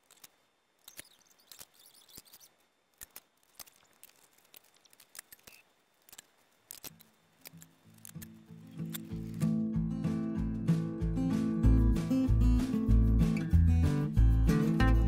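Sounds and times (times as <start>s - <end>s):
music: 8.2s - 15.0s.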